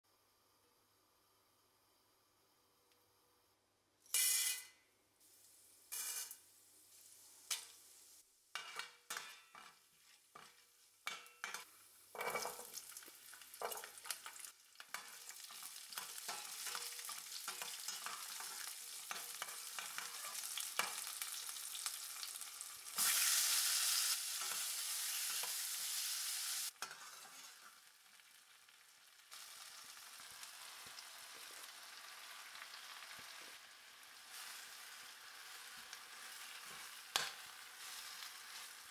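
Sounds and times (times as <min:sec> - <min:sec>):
food sizzling in oil: 0:04.1 - 0:38.9
lentils clattering into pan: 0:08.6 - 0:21.6.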